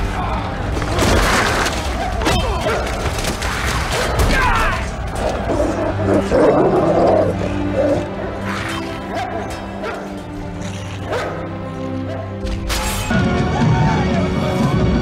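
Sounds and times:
film soundtrack music: 0.0 - 15.0
men yelling: 4.1 - 8.2.

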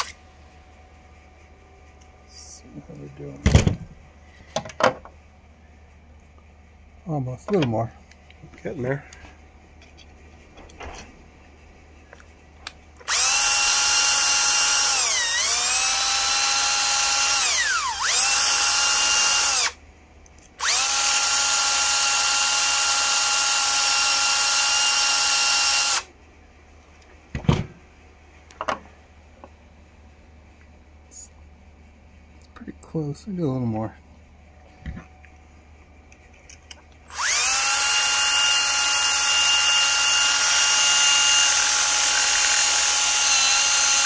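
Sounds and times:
power drill running: 13.0 - 19.8, 20.6 - 26.1, 37.1 - 44.0.

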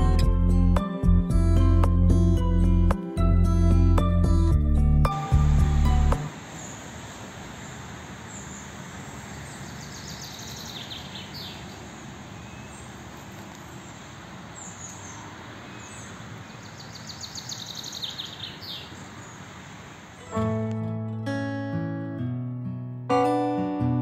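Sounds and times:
outdoor background noise: 5.0 - 22.4
birds chirping: 5.1 - 20.4.

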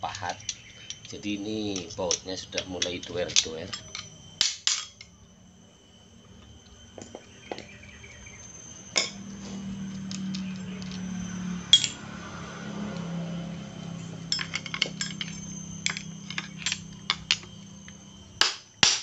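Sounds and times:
low hum: 0.0 - 18.4
metal parts clinking: 0.3 - 5.2, 9.0 - 9.2, 9.9 - 12.0, 14.2 - 18.0.

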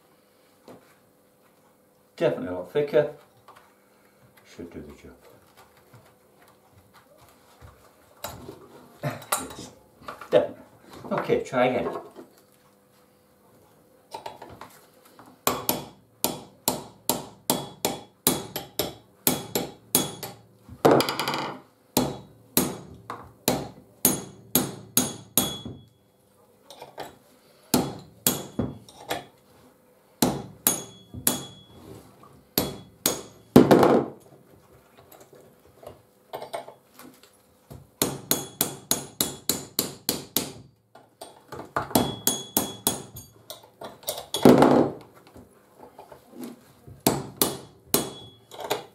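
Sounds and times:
hammer striking metal chisel: 15.4 - 20.4, 21.0 - 26.0, 27.7 - 29.3, 30.2 - 31.8, 32.6 - 33.7, 38.0 - 44.5, 47.1 - 48.9.

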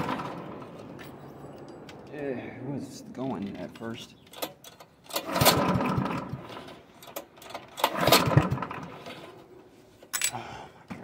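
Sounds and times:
mower engine pull-starting: 0.0 - 0.8, 4.3 - 9.5.

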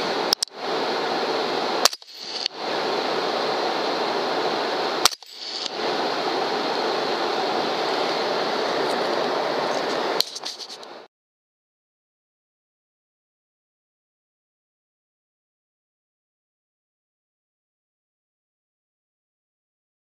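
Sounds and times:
loud steady hiss: 0.0 - 11.1.

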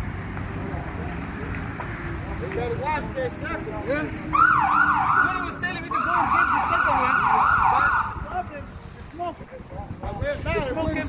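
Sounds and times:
siren yelping: 4.3 - 8.3.

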